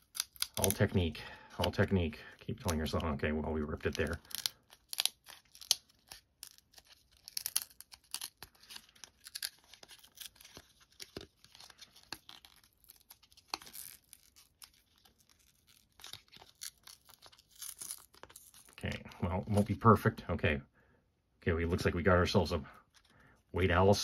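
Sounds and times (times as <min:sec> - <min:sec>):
paper tearing and crinkling: 0:00.0 - 0:01.9, 0:02.5 - 0:19.8.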